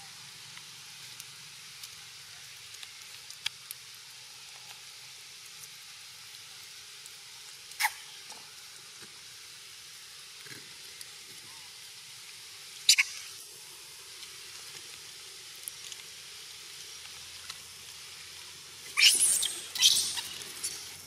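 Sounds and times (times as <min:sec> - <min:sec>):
steady high hiss: 0:00.0 - 0:21.0
short sharp squeak: 0:19.0 - 0:20.8.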